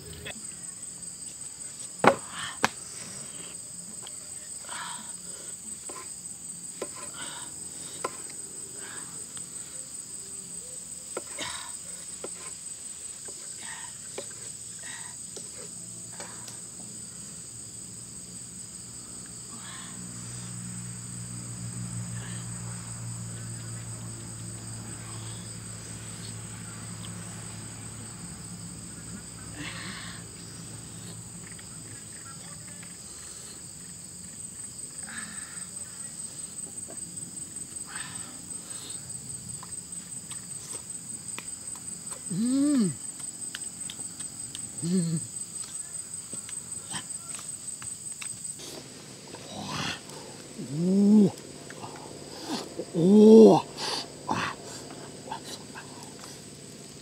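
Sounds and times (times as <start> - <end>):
low hum: 0.0 - 0.3
insects trilling: 0.0 - 57.0.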